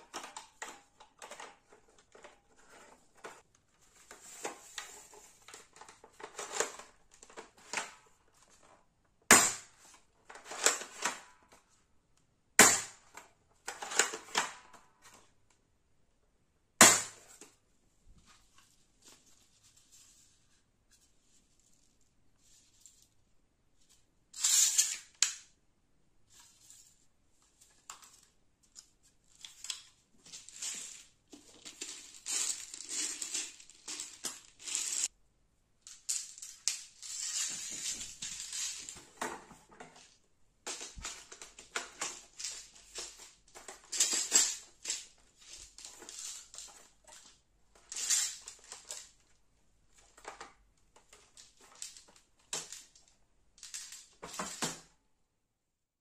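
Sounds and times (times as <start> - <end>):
plastic toy gun clicks and rattles: 0.0 - 2.4, 5.4 - 8.0, 9.3 - 11.4, 12.6 - 14.9, 24.4 - 25.5, 40.7 - 49.2, 50.0 - 54.9.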